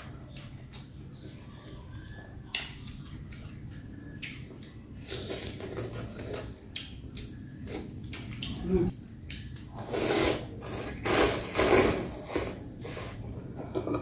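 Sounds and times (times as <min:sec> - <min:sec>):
slurping and chewing: 0:04.2 - 0:08.6, 0:09.2 - 0:13.2.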